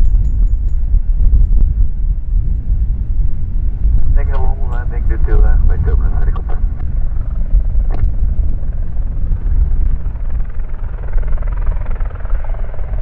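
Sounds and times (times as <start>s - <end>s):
helicopter rotor rumble: 0.0s - 13.0s.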